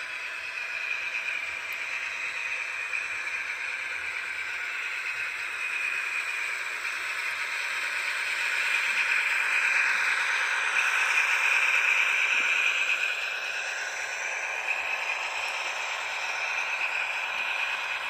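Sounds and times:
model train whirring on track: 0.0s - 18.0s.

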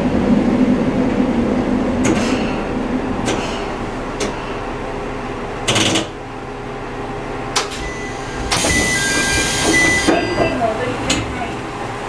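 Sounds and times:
diesel railcar engine idling: 0.0s - 12.0s
sharp clicks and knocks: 5.7s - 6.1s
pneumatic air hiss: 8.3s - 10.1s.

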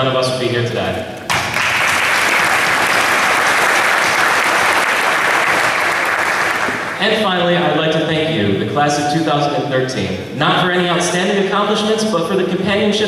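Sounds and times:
audience applauding: 1.3s - 7.0s.

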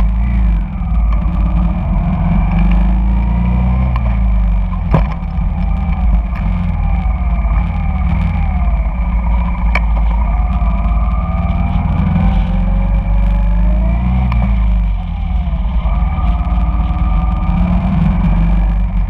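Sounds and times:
motorcycle engine running: 0.0s - 19.0s
surrounding traffic engines: 0.0s - 19.0s.

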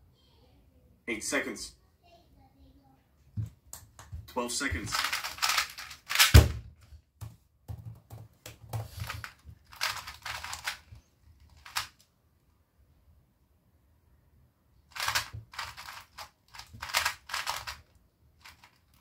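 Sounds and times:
speed cube turning clicks: 4.9s - 6.3s, 8.7s - 12.0s, 14.9s - 19.0s
sharp thump: 6.2s - 6.7s.

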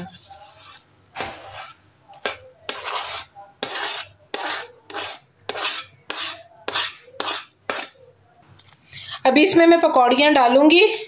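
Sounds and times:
plastic spoon scraping wooden board: 0.0s - 8.0s.

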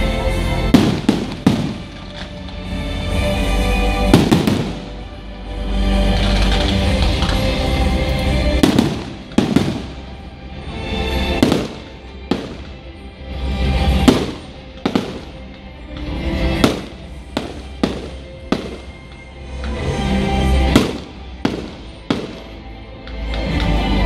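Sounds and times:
loud music: 0.0s - 24.0s
fireworks bangs: 0.6s - 2.4s, 4.0s - 5.1s, 8.2s - 10.3s, 11.1s - 13.0s, 13.7s - 22.6s.

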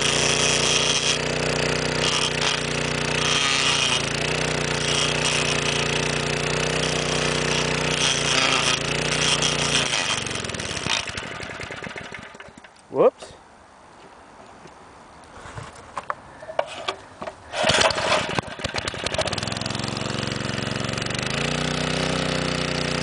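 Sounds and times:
small engine running: 0.0s - 12.7s, 17.5s - 23.0s.

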